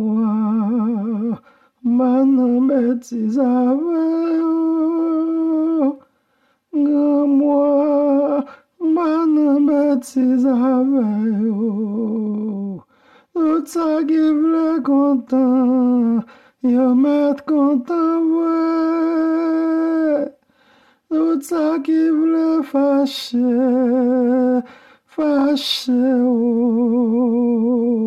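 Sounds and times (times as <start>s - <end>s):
man singing unaccompanied: 0.0s - 28.0s
singer breathing: 1.4s - 1.8s, 6.0s - 6.7s, 8.4s - 8.8s, 12.8s - 13.4s, 16.2s - 16.6s, 20.4s - 21.1s, 24.6s - 25.1s.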